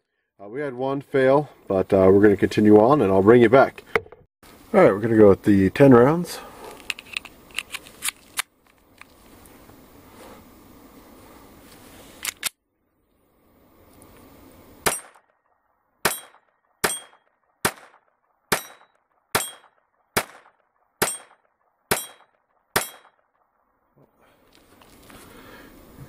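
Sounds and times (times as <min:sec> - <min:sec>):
pistol shots: 0:14.8 - 0:15.2, 0:16.0 - 0:23.3
sharp cracks: 0:14.8 - 0:23.6.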